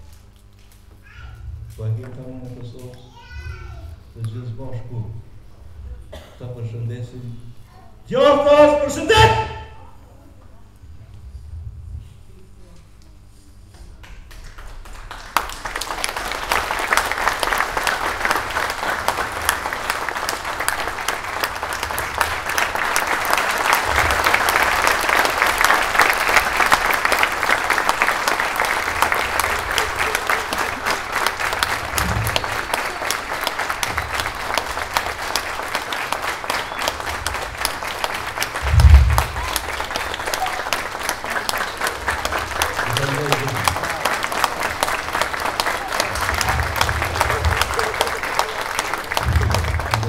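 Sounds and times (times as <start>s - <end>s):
audience applauding: 14.0s - 50.0s
low thump: 38.6s - 39.5s, 49.2s - 50.0s.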